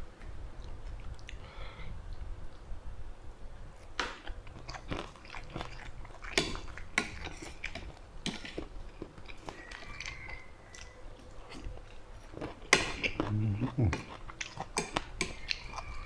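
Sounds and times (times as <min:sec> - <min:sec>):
close-up chewing: 0:03.8 - 0:16.0.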